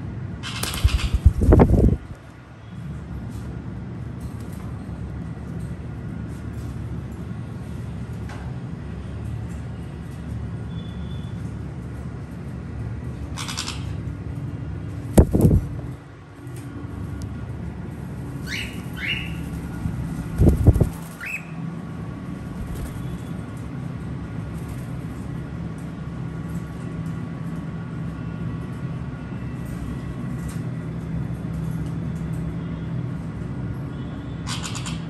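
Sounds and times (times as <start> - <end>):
steady low hum: 0.0 - 34.5
bird wings flapping: 0.5 - 2.1, 15.2 - 15.8, 19.3 - 21.4, 22.5 - 23.3.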